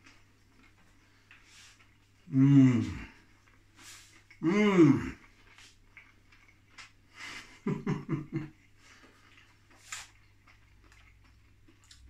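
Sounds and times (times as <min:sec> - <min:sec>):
man eating mouth sounds: 0:00.0 - 0:12.0
man humming mm: 0:02.3 - 0:03.2, 0:04.4 - 0:05.2.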